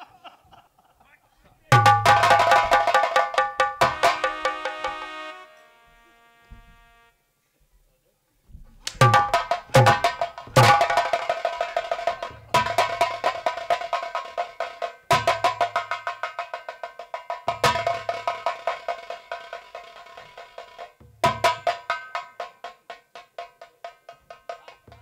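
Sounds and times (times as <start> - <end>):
drum rolls: 1.7 - 5.1, 8.5 - 25.0.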